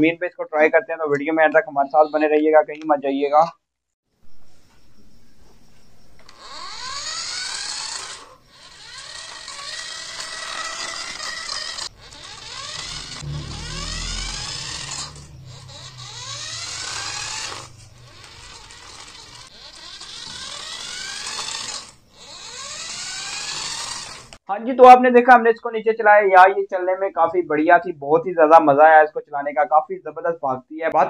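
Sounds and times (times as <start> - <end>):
toy car electric motor whining: 6.2 - 24.4
low rumble: 11.9 - 18.9.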